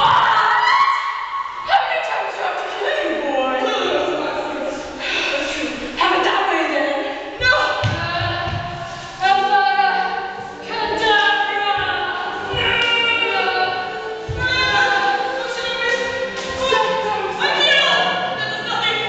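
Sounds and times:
low thuds: 0:07.4 - 0:08.9, 0:14.2 - 0:15.0.

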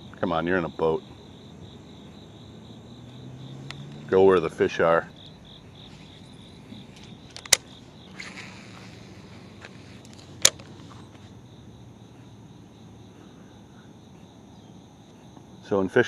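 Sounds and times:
insects chirring: 0:00.0 - 0:16.0
fishing reel clicks: 0:07.3 - 0:09.3.

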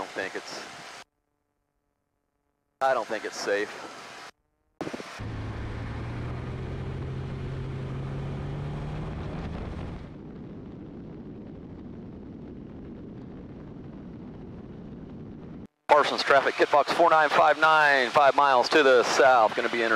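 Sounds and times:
light aircraft engine and propeller: 0:00.0 - 0:01.0, 0:02.8 - 0:10.7, 0:13.1 - 0:19.9.

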